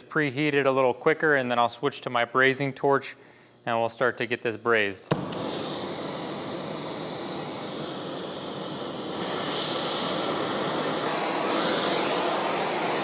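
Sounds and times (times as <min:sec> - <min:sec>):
gas torch hissing: 0:05.1 - 0:13.0.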